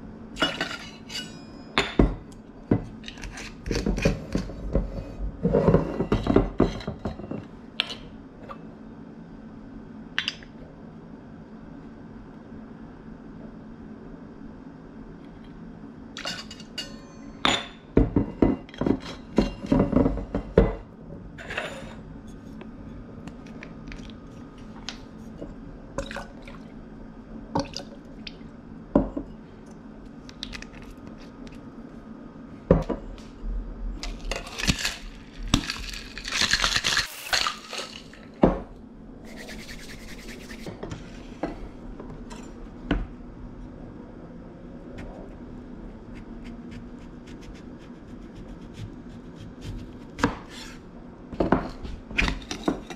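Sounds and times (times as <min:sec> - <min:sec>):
glass and metal clinking: 0:00.4 - 0:02.2, 0:16.2 - 0:17.8.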